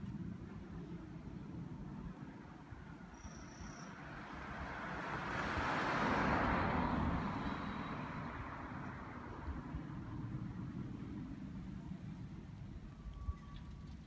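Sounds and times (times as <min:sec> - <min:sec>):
car passing by: 0:03.2 - 0:12.5.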